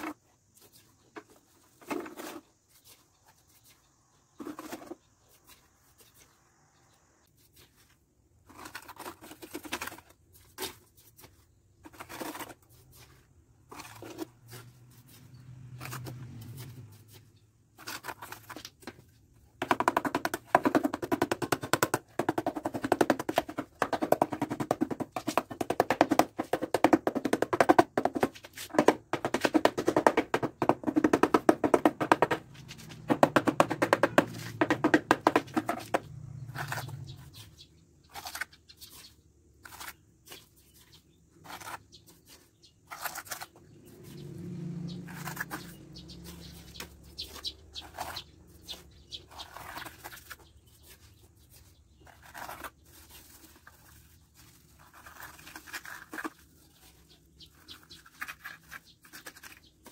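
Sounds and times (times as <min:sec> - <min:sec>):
fast continuous rattle of knocks: 0:19.6 - 0:36.2.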